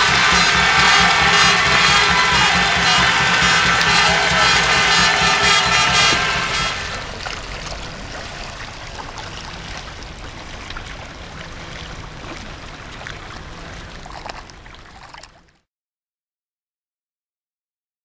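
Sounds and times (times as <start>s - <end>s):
water lapping and splashing: 3.1s - 15.6s
kayak paddles dipping in water: 5.6s - 15.6s.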